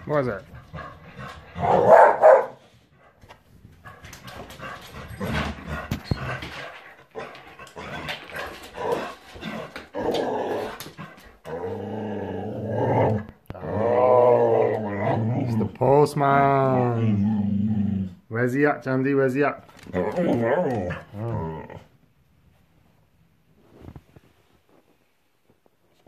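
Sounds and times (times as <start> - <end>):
dog growling and grumbling: 4.6 - 18.3, 19.7 - 22.0.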